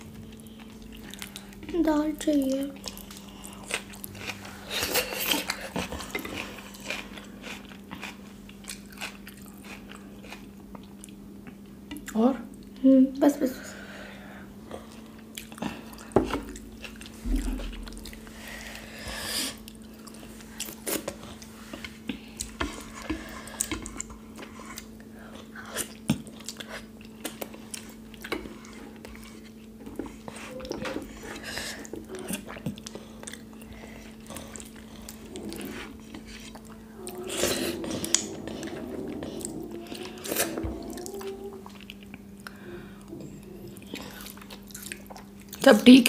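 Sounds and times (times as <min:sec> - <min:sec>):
steady low hum: 0:00.0 - 0:46.0
mouths chewing: 0:19.6 - 0:45.6.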